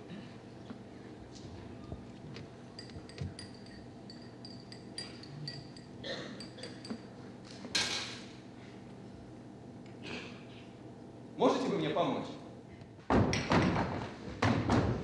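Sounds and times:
porcelain cup and saucer clinking: 0:02.8 - 0:07.1.

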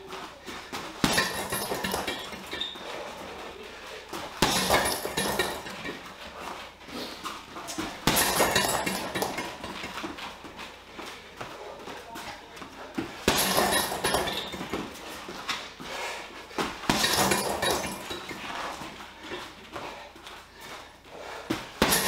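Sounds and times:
gloves punching heavy bag: 0:00.9 - 0:03.2, 0:04.3 - 0:06.1, 0:07.8 - 0:10.2, 0:13.2 - 0:19.9, 0:21.2 - 0:22.0
bag clattering on mount: 0:01.0 - 0:02.8, 0:04.4 - 0:06.0, 0:07.8 - 0:10.0, 0:13.3 - 0:14.9, 0:16.9 - 0:18.7, 0:21.8 - 0:22.0.

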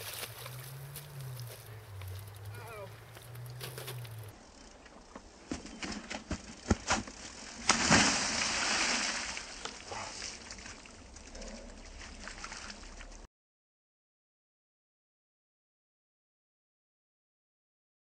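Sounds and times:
bike crashing into puddle: 0:00.0 - 0:04.3, 0:05.5 - 0:10.8
water splashing and sloshing: 0:00.0 - 0:04.3, 0:05.5 - 0:13.3.

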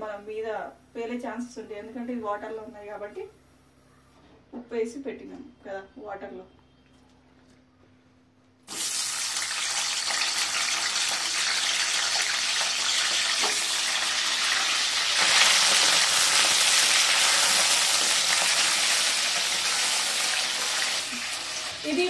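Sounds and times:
vegetables sizzling in hot oil: 0:08.7 - 0:22.0.

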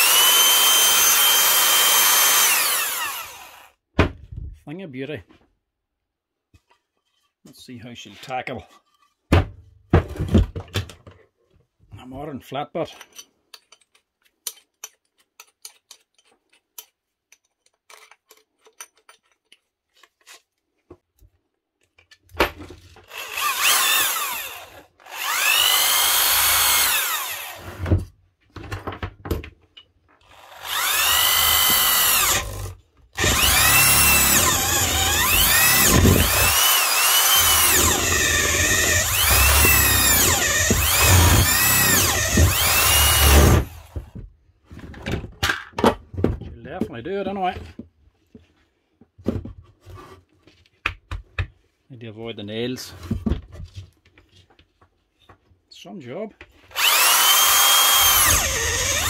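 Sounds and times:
electric drill boring into timber: 0:00.0 - 0:03.8, 0:23.0 - 0:27.9, 0:30.2 - 0:44.1, 0:56.7 - 0:59.0
drill chuck clicks: 0:56.7 - 0:59.0.

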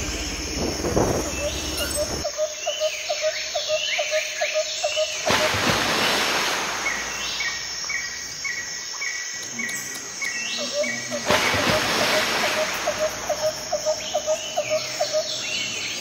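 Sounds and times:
steady hiss: 0:00.0 - 0:02.3.

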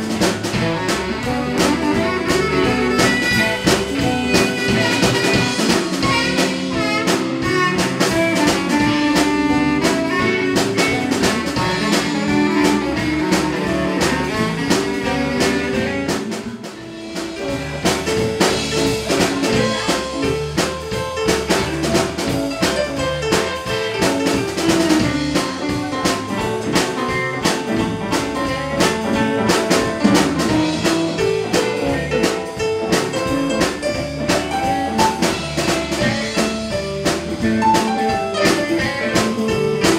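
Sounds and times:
bass: 0:00.0 - 0:39.9
drum kit: 0:00.0 - 0:39.9
electric guitars: 0:00.0 - 0:39.9
keyboard: 0:00.0 - 0:39.9
saxophone: 0:00.0 - 0:39.9.

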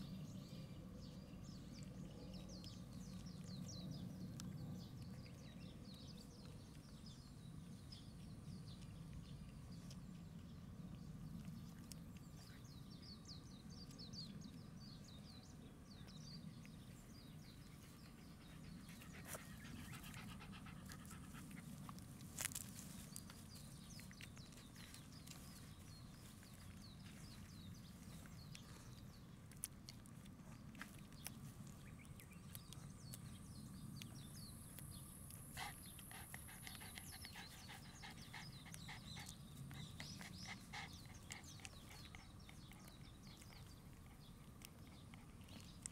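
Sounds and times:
puppies suckling: 0:34.2 - 0:45.9.

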